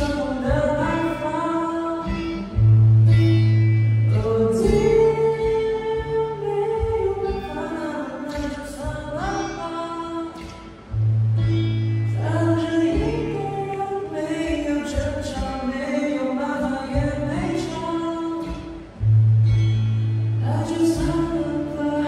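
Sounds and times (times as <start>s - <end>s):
man singing into a microphone: 0.0s - 2.6s, 4.1s - 10.6s, 12.1s - 18.8s, 20.4s - 22.0s
low bass notes: 0.0s - 15.5s, 16.9s - 22.0s
acoustic guitar: 0.0s - 22.0s.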